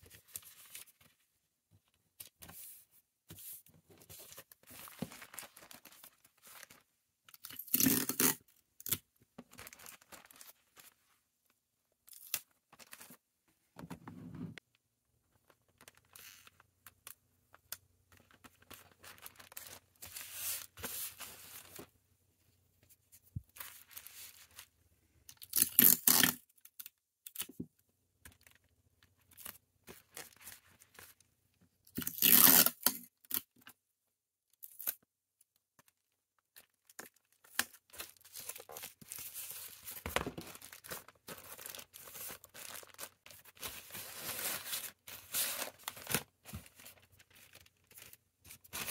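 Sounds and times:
plastic bags rustling: 4.8s - 6.8s, 37.9s - 48.9s
plastic tearing: 7.4s - 10.4s, 25.4s - 26.4s, 32.0s - 33.4s.

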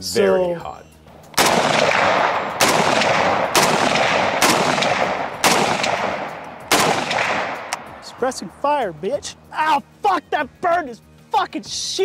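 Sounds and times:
rifle shots with rolling echo: 1.1s - 8.3s.

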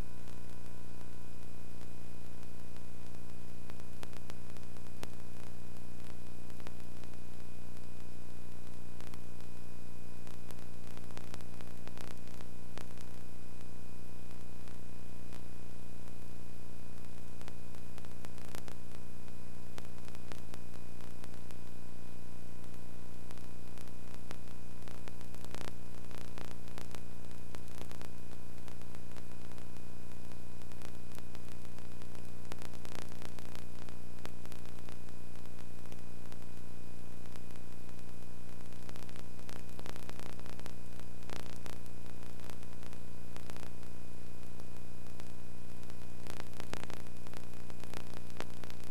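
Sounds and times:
crackles: 0.0s - 48.9s
electrical hum: 0.0s - 48.9s.

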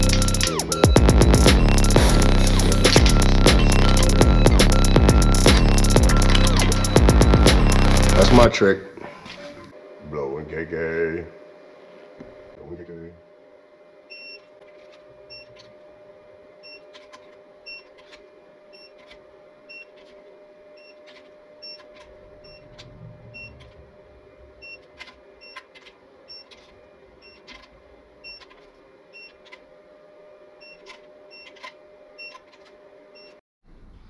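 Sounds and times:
torque wrench beeping: 0.0s - 8.5s
steady hum: 0.0s - 31.3s.

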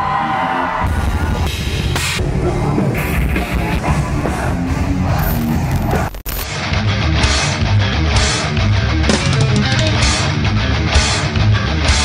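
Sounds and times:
heavy rock music: 0.0s - 12.0s.

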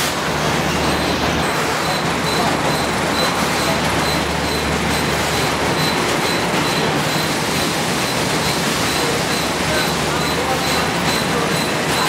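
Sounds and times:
factory machinery running: 0.0s - 12.0s.

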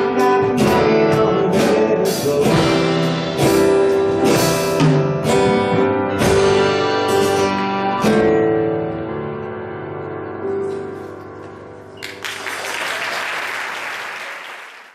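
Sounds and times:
audience applause: 12.0s - 14.9s.

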